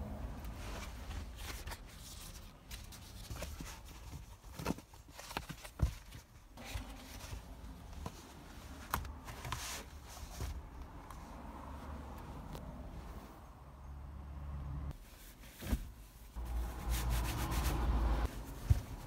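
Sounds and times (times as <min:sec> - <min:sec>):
foam mat rustling and creaking: 0:18.2 - 0:19.0.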